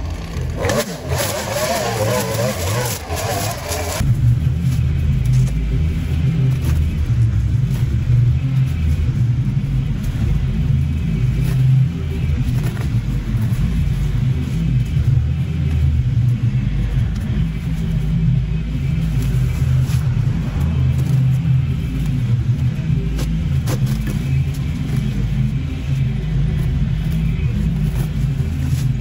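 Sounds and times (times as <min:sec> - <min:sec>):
string trimmer engine revving: 0:00.0 - 0:04.0
low drone with deep rumble: 0:00.0 - 0:29.0.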